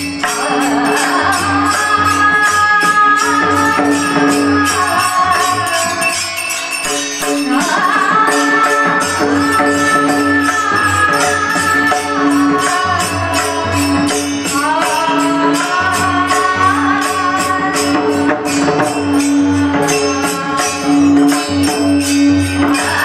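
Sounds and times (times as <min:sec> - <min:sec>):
person singing: 0:00.0 - 0:06.7
jingling metal percussion: 0:00.0 - 0:23.0.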